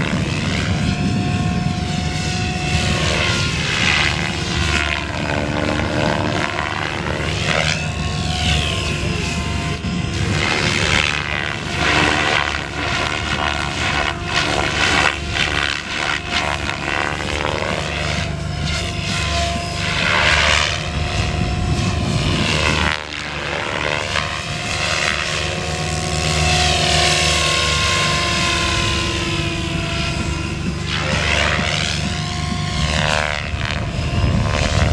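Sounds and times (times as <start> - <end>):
motor whine: 0.0 - 34.9.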